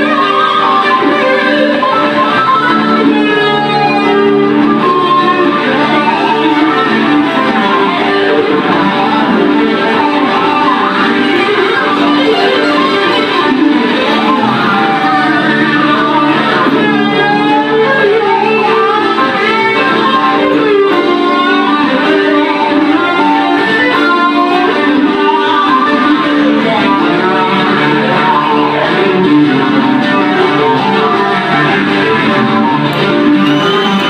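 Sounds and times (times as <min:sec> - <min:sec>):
acoustic guitar accompaniment: 0:00.0 - 0:34.0
fast lead guitar: 0:00.0 - 0:34.0.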